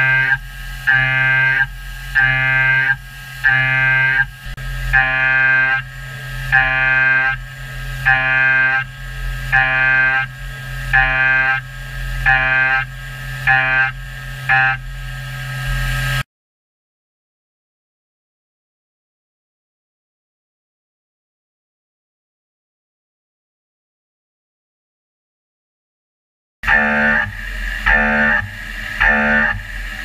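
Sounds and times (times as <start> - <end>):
milling cutter whine: 0.0 - 16.2, 26.6 - 30.0
spindle hum: 0.0 - 16.2, 26.6 - 30.0.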